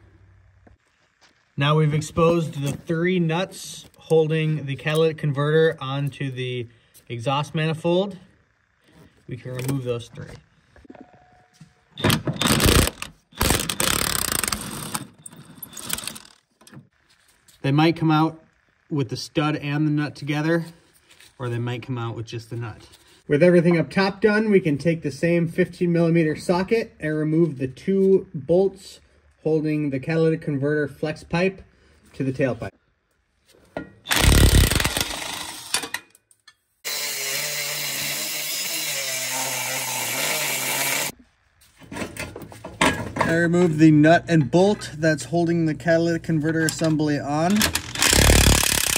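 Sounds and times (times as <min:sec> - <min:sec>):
angle grinder cutting bolts: 0:12.0 - 0:16.5, 0:34.0 - 0:41.2, 0:46.6 - 0:48.9
loud mechanical burst: 0:12.4 - 0:15.0, 0:34.1 - 0:35.8, 0:47.7 - 0:48.9
ratchet wrench clicking: 0:12.4 - 0:15.0, 0:34.1 - 0:35.9, 0:47.5 - 0:48.9.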